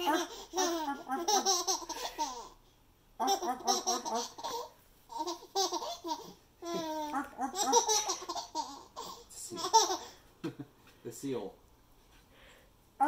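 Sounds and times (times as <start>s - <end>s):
baby laughing: 0.0s - 2.6s, 3.2s - 10.2s.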